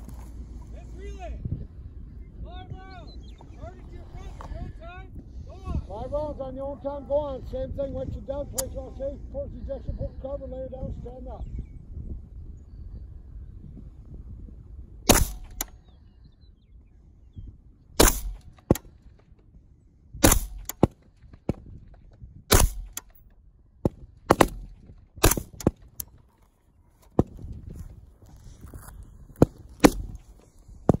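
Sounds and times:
rifle shots: 0:15.1 - 0:15.7, 0:18.0 - 0:19.0, 0:20.2 - 0:21.1, 0:22.5 - 0:23.2, 0:24.2 - 0:26.0.

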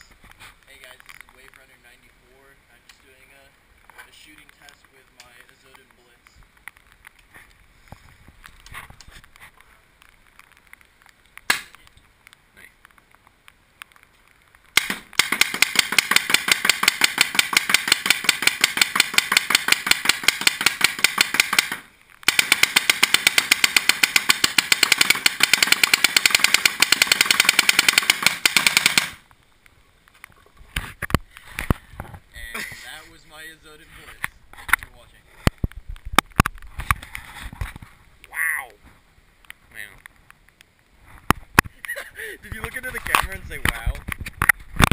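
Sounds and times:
paintball marker firing pops: 0:11.4 - 0:12.0, 0:14.7 - 0:29.2.

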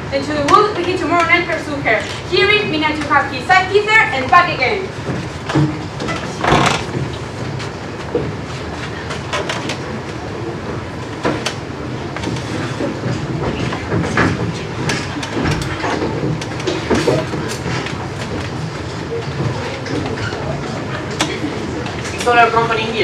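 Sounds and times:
audience noise: 0:02.6 - 0:23.0
footsteps on stage: 0:04.2 - 0:22.3.

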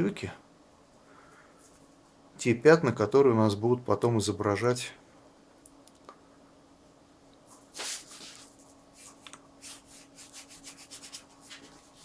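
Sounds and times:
brush rubbing on textured paper: 0:07.6 - 0:12.0.

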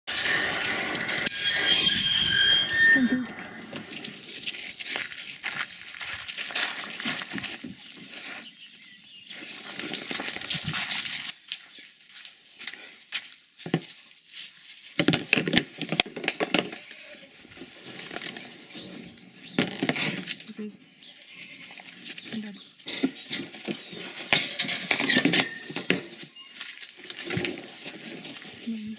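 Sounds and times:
straw rustling and scuffing: 0:03.1 - 0:15.0, 0:21.0 - 0:28.9.

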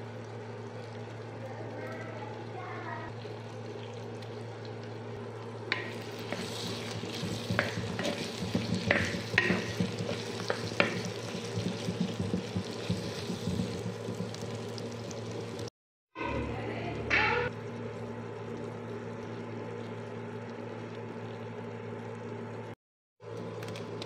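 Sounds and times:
vegetables frying in oil: 0:00.0 - 0:15.7
spatula scraping a pan: 0:05.7 - 0:14.3.

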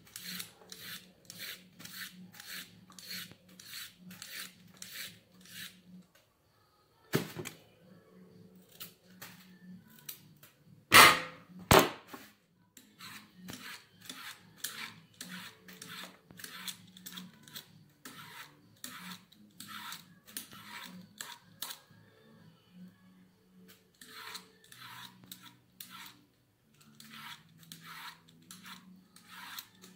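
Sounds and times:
vegetable peeler scraping carrot: 0:00.0 - 0:06.0, 0:12.8 - 0:21.8, 0:23.8 - 0:26.2, 0:26.8 - 0:29.9.

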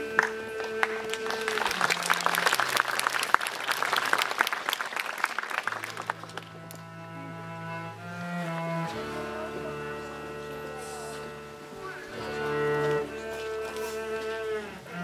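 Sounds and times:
bowed string music: 0:00.0 - 0:03.1, 0:05.7 - 0:15.0
audience applauding: 0:00.0 - 0:07.2.

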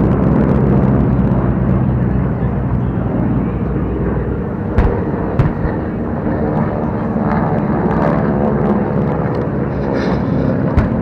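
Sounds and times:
propeller planes droning: 0:00.0 - 0:11.0
sharp thumps: 0:04.8 - 0:05.8.

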